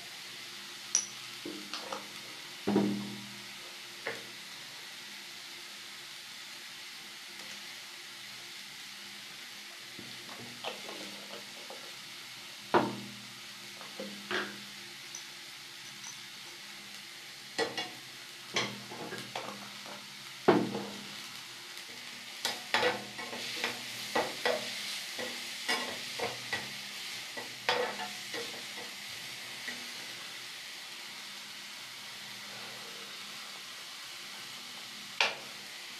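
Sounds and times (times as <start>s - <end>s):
food sizzling in a wok: 0.0s - 35.9s
metal spatula scraping a wok: 22.7s - 29.0s.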